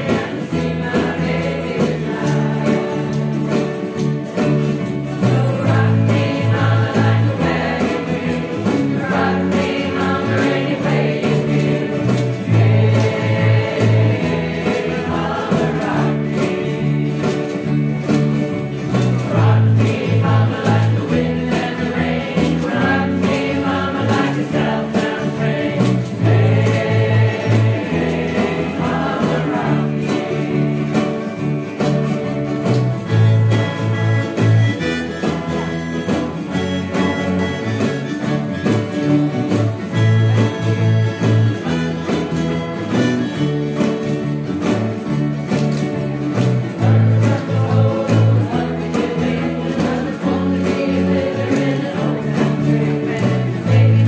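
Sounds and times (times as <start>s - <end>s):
group singing in chorus: 0.0s - 31.8s, 45.5s - 54.0s
ukuleles and guitars strumming: 0.0s - 54.0s.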